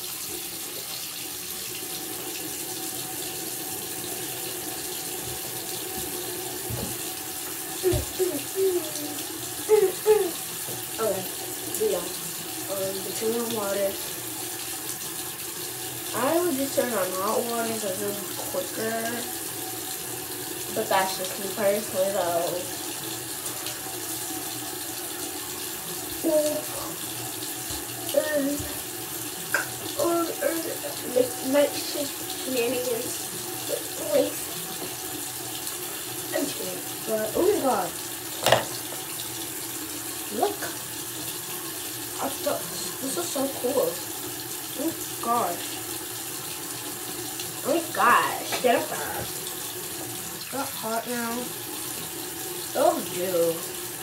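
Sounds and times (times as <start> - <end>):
faucet running into sink: 0.0 - 54.0
person speaking: 7.8 - 10.4, 26.2 - 27.0, 28.1 - 28.8, 29.9 - 34.4, 36.4 - 38.8, 47.6 - 49.4.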